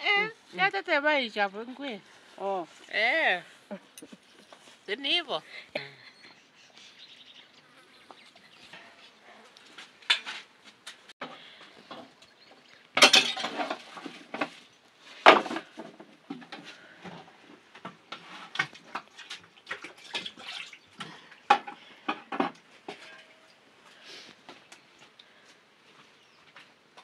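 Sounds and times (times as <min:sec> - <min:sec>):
bowls and utensils clinking: 0:13.0 - 0:14.4.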